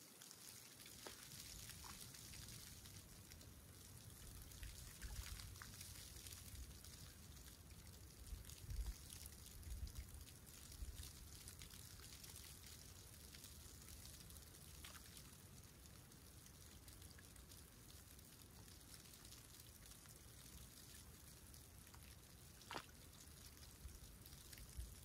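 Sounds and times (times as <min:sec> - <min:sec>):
small drips and ticks: 0:00.0 - 0:25.0
sea water lapping at shoreline: 0:21.9 - 0:24.0.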